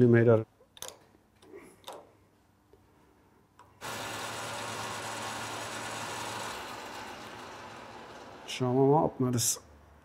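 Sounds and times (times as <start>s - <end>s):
metal lathe humming: 3.8s - 9.0s.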